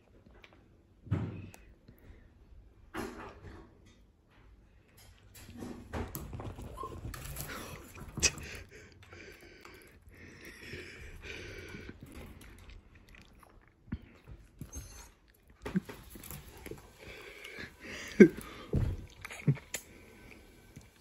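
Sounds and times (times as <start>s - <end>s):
dog chewing and crunching a treat: 5.4s - 21.0s.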